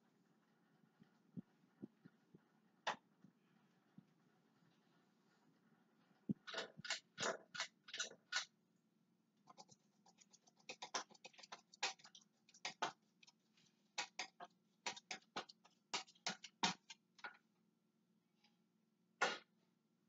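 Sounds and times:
ceiling fan clicking and ticking: 6.3s - 8.5s, 9.5s - 13.4s.

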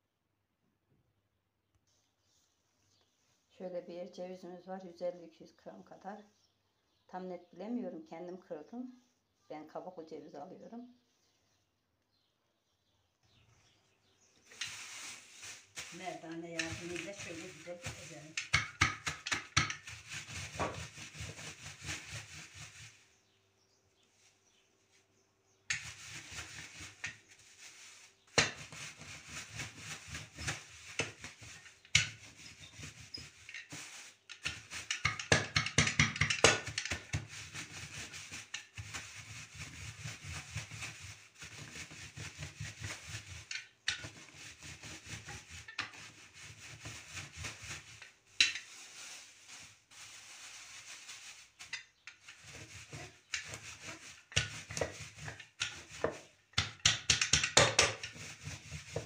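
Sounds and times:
plastic bag crinkling: 14.4s - 18.4s, 46.1s - 54.2s
rolling pin rubbing: 14.4s - 23.2s, 25.7s - 59.0s.

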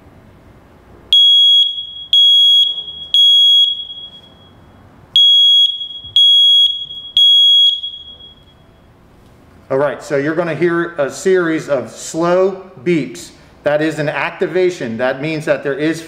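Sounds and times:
smoke detector alarm beeps: 1.1s - 8.9s.

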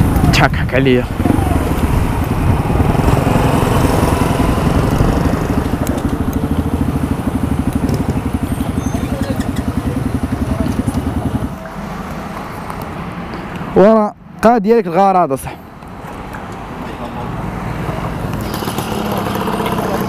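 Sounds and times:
wind noise: 0.0s - 9.4s
motorcycle engine at low revs: 1.1s - 11.6s, 18.4s - 20.0s.

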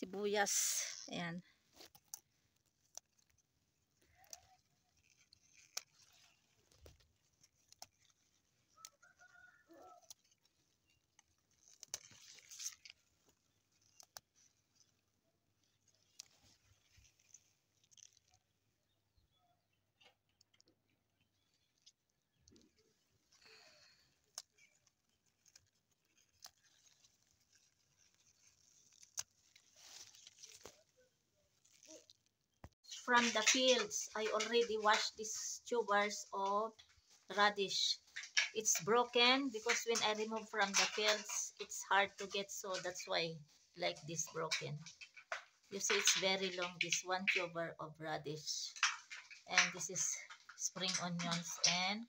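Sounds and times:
rustling of leaves being handled: 0.0s - 18.6s, 21.2s - 52.0s
faint animal call: 8.8s - 10.1s
hand brushing leaves: 25.4s - 31.9s.

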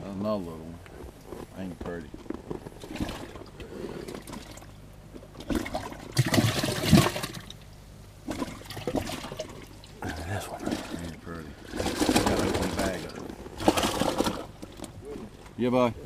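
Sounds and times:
water splashing in a tank: 2.8s - 14.9s.

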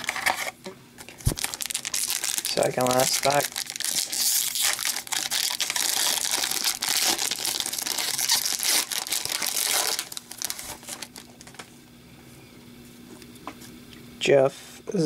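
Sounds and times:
wrapper tearing and crinkling: 1.2s - 11.5s.

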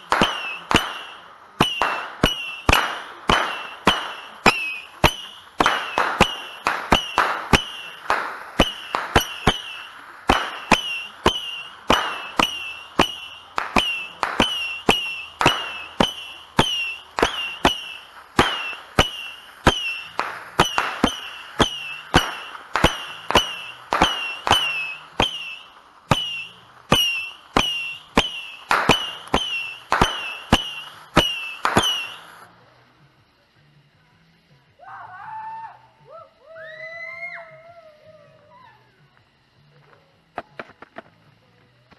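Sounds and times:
firework bangs with whistles: 0.0s - 32.5s.

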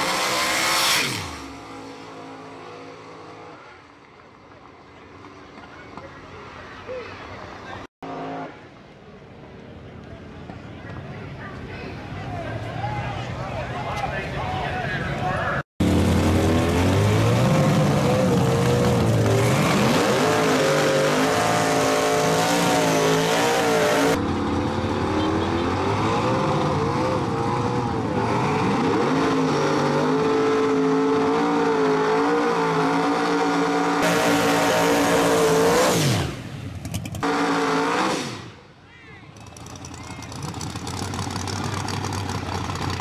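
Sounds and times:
car engine revving hard: 0.0s - 1.5s, 15.8s - 24.2s, 25.6s - 36.5s, 37.2s - 38.6s
car launching and pulling away: 25.9s - 38.7s.

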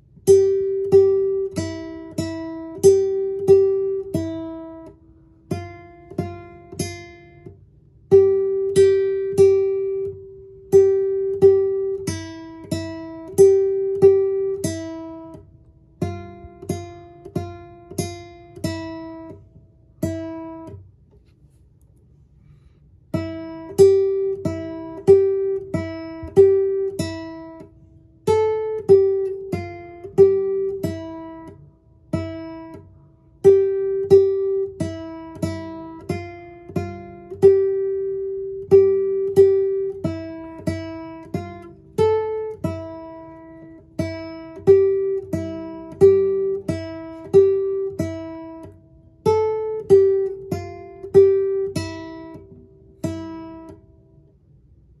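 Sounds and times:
classical guitar fingerstyle melody: 0.0s - 55.0s.

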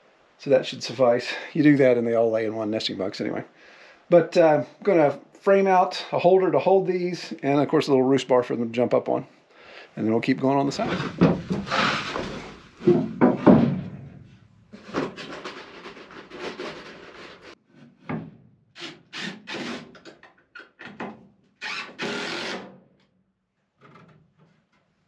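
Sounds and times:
wood scraping and rubbing: 10.2s - 14.1s, 14.7s - 17.6s
wood knocking on wood: 10.4s - 14.1s.

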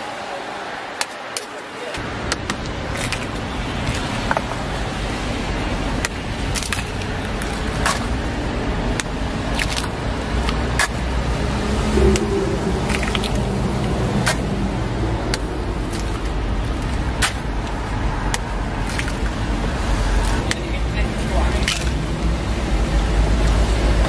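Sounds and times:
low rumble: 10.1s - 20.4s.

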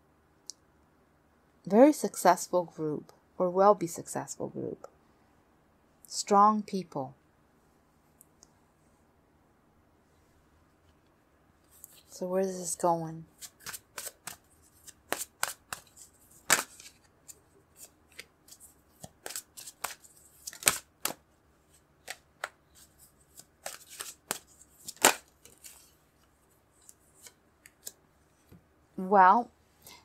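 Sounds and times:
cards shuffling: 13.3s - 28.0s.

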